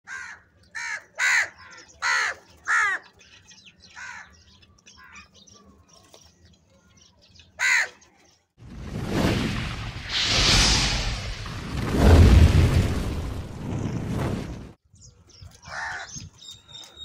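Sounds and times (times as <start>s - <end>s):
crows cawing: 0.1s - 3.1s, 4.0s - 4.4s, 7.6s - 8.0s, 15.7s - 16.1s
faint crow calls: 0.1s - 3.1s, 3.9s - 5.3s, 7.6s - 8.1s, 15.6s - 16.2s.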